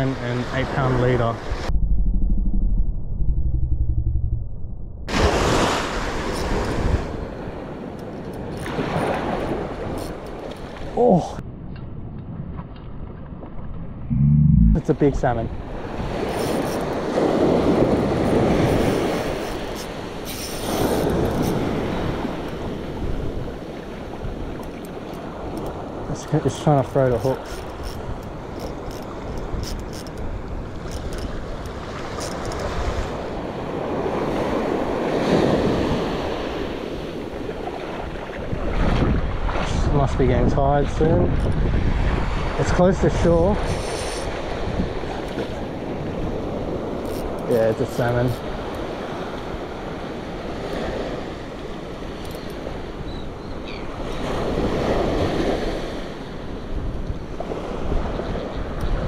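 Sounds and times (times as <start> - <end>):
wind buffeting microphone: 0.8 - 26.1, 27.3 - 47.5, 48.1 - 59.0
small surf breaking on beach: 5.1 - 7.4
surf waves washing onto sand: 5.1 - 11.4, 14.8 - 53.1, 53.9 - 59.0.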